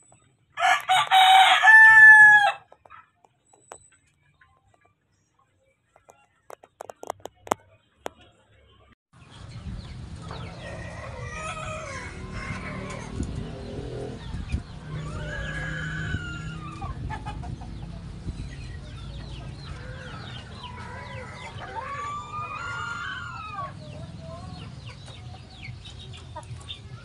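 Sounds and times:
rooster crowing: 0:00.6 - 0:02.7, 0:10.6 - 0:13.2, 0:14.9 - 0:17.0, 0:19.7 - 0:23.8
chickens clucking: 0:02.6 - 0:27.0.

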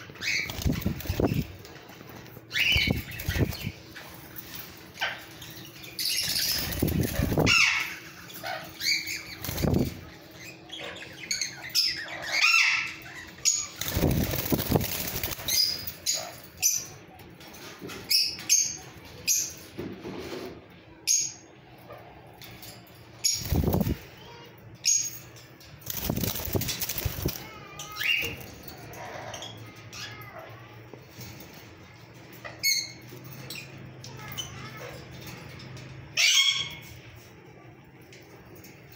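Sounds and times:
parakeets flapping wings: 0:00.0 - 0:10.2, 0:13.0 - 0:16.8, 0:23.2 - 0:24.4, 0:25.2 - 0:29.4
parakeets chirping: 0:00.0 - 0:17.1, 0:23.1 - 0:30.6, 0:36.1 - 0:37.0.

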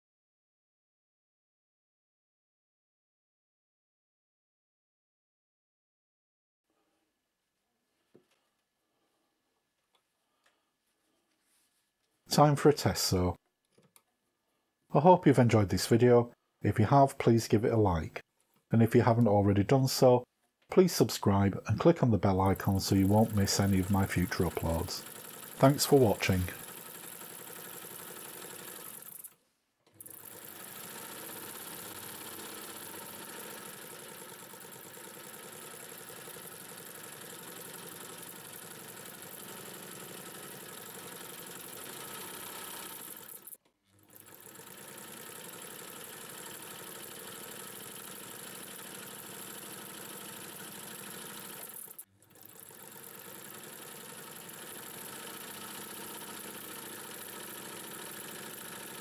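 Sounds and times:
sewing machine running: 0:22.4 - 0:59.0.

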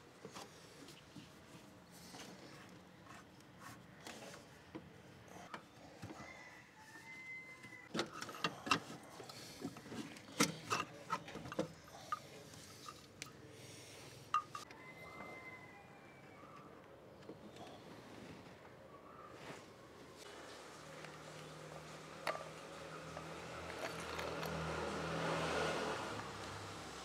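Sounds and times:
spanner and metal fittings clinking: 0:23.7 - 0:24.6.

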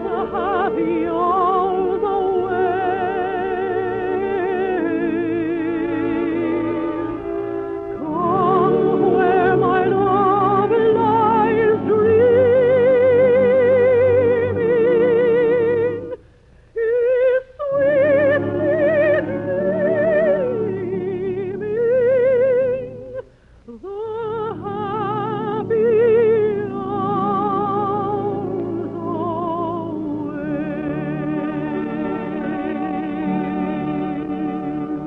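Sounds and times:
operatic soprano singing: 0:00.0 - 0:35.0
orchestra playing: 0:05.8 - 0:16.1.

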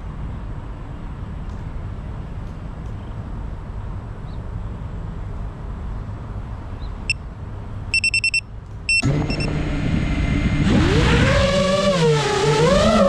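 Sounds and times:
high electronic beeps: 0:08.0 - 0:09.6
drone motors humming: 0:08.9 - 0:13.0.

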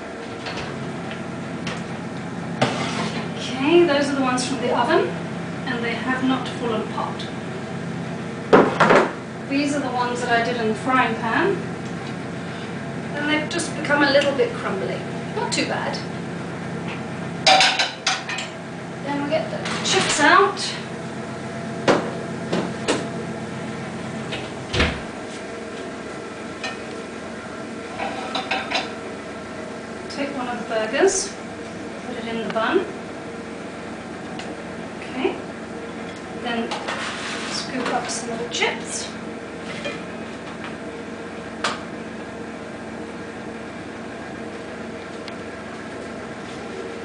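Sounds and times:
kitchen appliance humming: 0:00.0 - 0:47.0
oven door shutting: 0:24.3 - 0:25.2.

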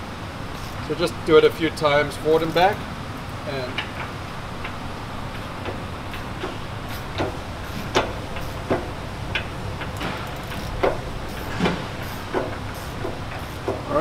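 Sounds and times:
steady low hum: 0:00.0 - 0:14.0
gear teeth clicking and knocking: 0:03.7 - 0:13.9.

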